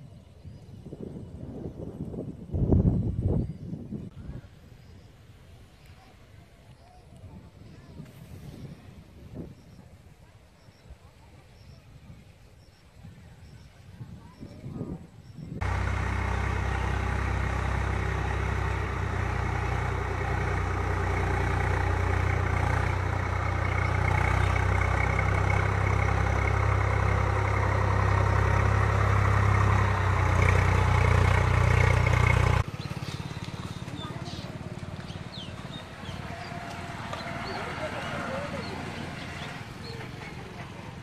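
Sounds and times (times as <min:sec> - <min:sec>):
tractor diesel engine: 0:15.6 - 0:41.0.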